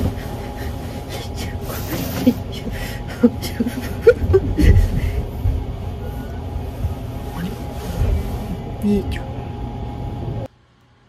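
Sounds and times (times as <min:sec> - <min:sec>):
train rumbling: 0:00.0 - 0:10.5
woman laughing and whimpering: 0:02.1 - 0:05.4.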